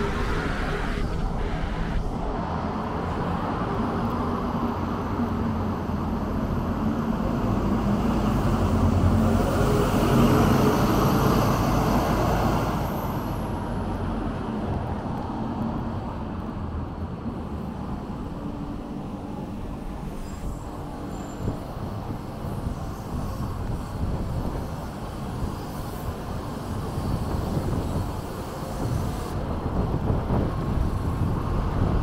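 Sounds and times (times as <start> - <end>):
background traffic: 0.0 - 32.0.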